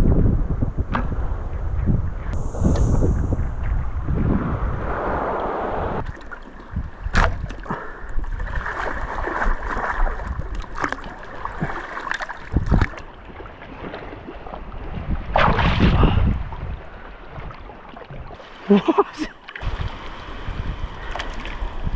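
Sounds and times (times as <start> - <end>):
wind buffeting microphone: 0.0 - 6.1, 12.4 - 17.6, 19.6 - 21.9
feet wading through shallow water: 6.0 - 15.1, 16.8 - 21.9
loud splash: 15.3 - 16.2.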